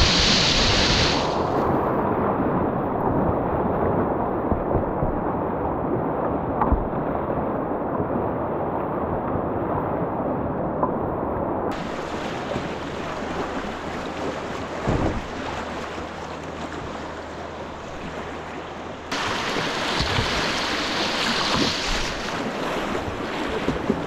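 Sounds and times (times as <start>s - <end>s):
water splashing over kayak: 0.0s - 8.4s, 11.7s - 24.0s
river rapids rushing: 11.7s - 16.7s, 18.3s - 22.4s
wind buffeting microphone: 11.7s - 24.0s
low thump: 14.8s - 15.4s.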